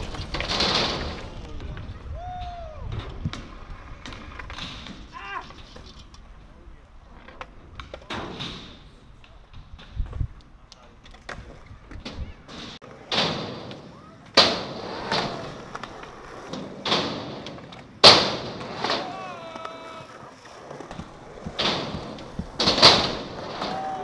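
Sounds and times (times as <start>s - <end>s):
skateboard slaps and landings: 0.0s - 2.1s, 11.0s - 24.0s
skateboard wheels rolling on concrete: 0.0s - 24.0s.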